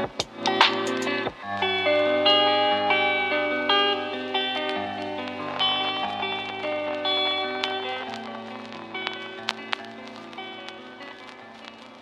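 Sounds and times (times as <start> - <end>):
sustained instrumental music: 0.4 - 11.8.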